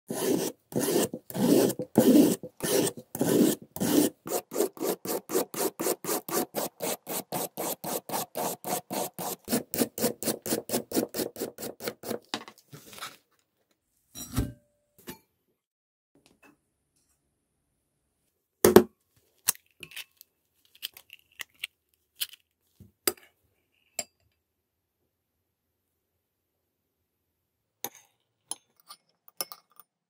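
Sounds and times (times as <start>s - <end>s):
peeler rasping on carrot: 0.1s - 12.2s.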